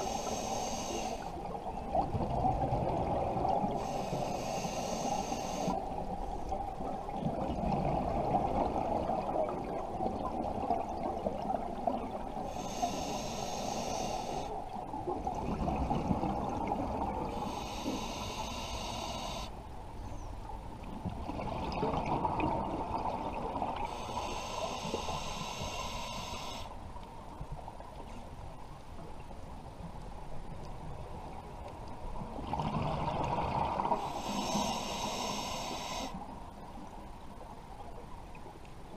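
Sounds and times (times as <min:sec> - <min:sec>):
regulator inhale hiss: 0:00.0 - 0:01.4, 0:03.7 - 0:06.0, 0:12.4 - 0:14.6, 0:17.3 - 0:19.6, 0:23.8 - 0:26.8, 0:33.9 - 0:36.3
exhaled air bubbling underwater: 0:00.0 - 0:19.5, 0:20.7 - 0:27.8, 0:30.6 - 0:37.5.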